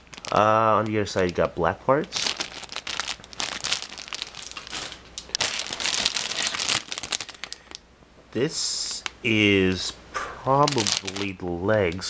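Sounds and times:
plastic bags crinkling: 0.0 - 7.8, 10.5 - 12.0.

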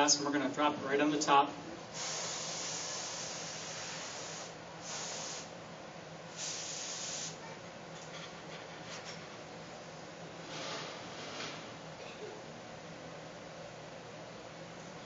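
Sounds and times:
low hum of furnaces: 0.0 - 15.0
short bursts of hiss: 1.9 - 5.5, 6.3 - 7.4.

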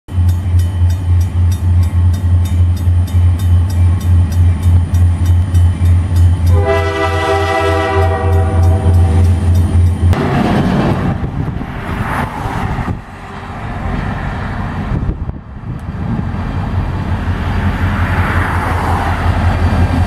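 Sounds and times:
locomotive engine throbbing: 0.1 - 20.0
locomotive air horn: 6.5 - 9.4.

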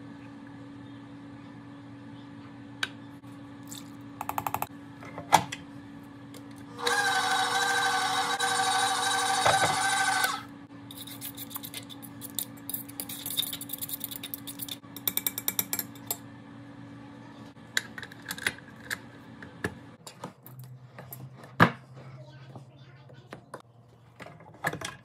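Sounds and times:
stand mixer motor: 6.7 - 10.5.

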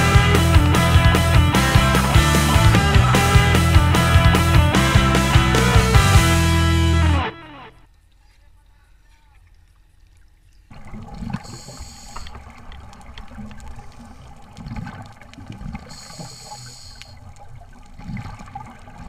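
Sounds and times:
gurgling exhaled bubbles underwater: 10.7 - 19.0
regulator hissing inhalations: 11.4 - 12.4, 15.9 - 17.2.

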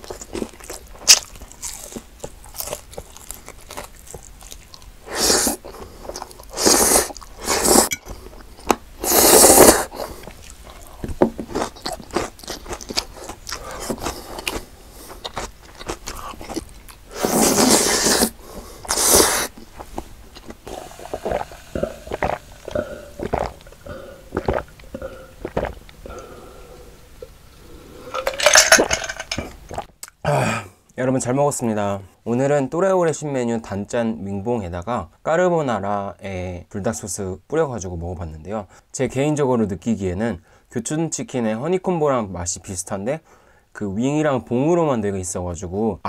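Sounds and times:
crunchy bites and chewing: 0.0 - 7.4, 9.5 - 26.2
swallowing gulps: 20.4 - 28.2.

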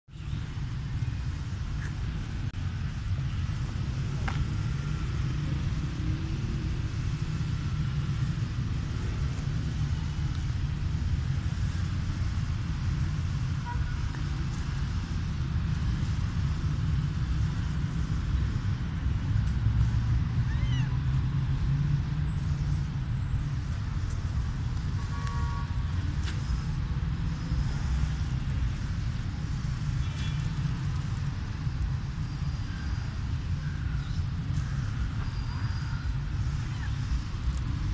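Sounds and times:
low outdoor rumble: 0.1 - 37.9
cat meowing: 20.5 - 21.0.

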